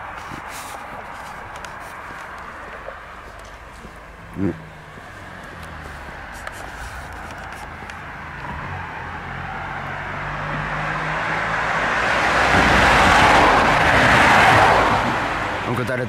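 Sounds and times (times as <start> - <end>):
car passing by: 4.6 - 16.0.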